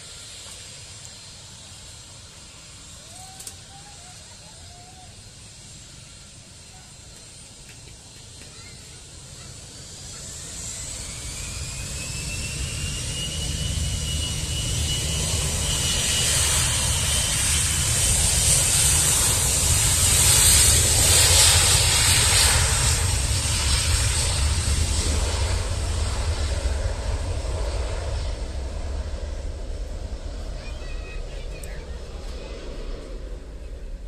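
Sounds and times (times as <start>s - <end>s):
jet engines at take-off thrust: 0.0s - 34.0s
engine whine rising in pitch: 9.7s - 31.2s.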